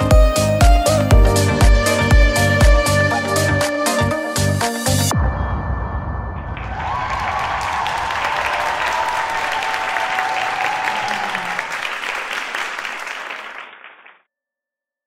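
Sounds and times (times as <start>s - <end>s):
audience applauding: 6.6s - 14.2s.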